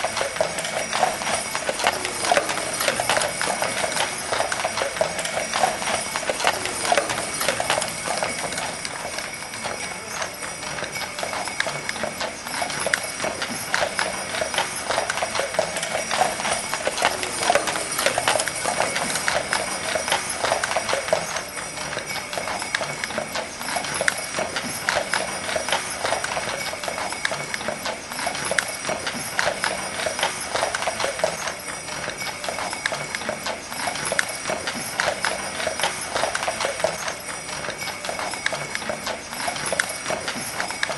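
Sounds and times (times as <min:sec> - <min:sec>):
horse hooves clip-clopping: 0:00.0 - 0:40.9.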